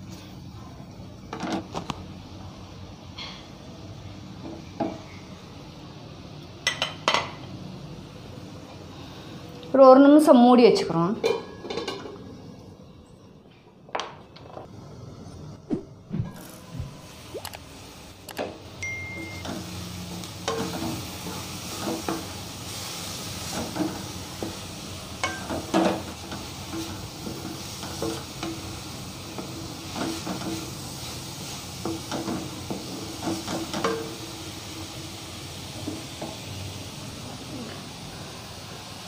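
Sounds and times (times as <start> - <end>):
frying sizzle: 16.3 - 39.0.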